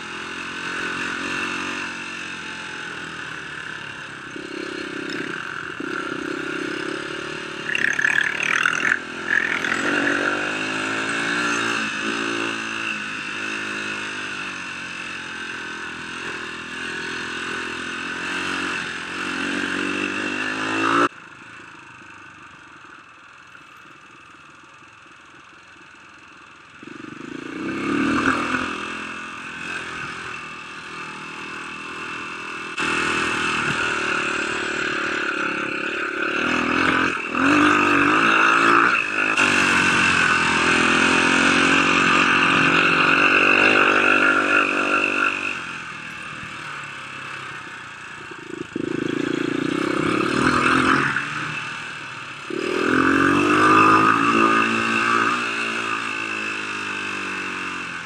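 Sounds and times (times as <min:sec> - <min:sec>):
dirt bike engine revving: 0:00.0 - 0:21.2, 0:26.8 - 0:58.0.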